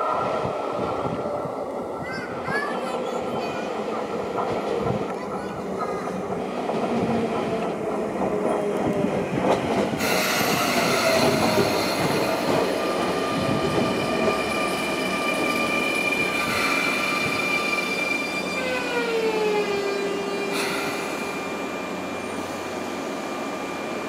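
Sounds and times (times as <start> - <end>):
train running gear rumbling: 0.4 - 24.0
high squeal of wheels and brakes: 13.8 - 19.1.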